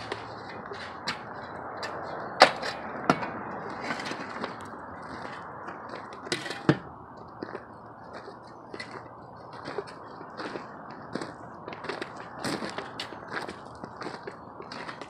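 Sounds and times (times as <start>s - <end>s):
shovel scraping soil: 0.0s - 2.9s.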